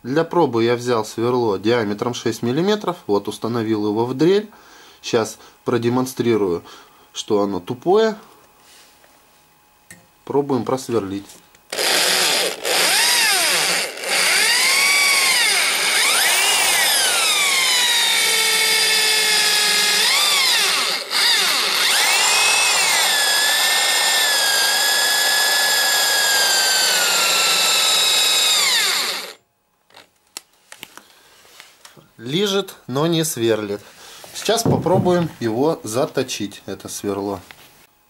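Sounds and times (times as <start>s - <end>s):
electric drill motor whine: 11.7s - 30.1s.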